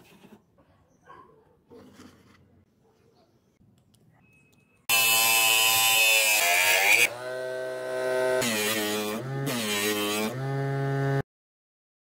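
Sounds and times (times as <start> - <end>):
bench saw motor whining: 4.9 - 11.2.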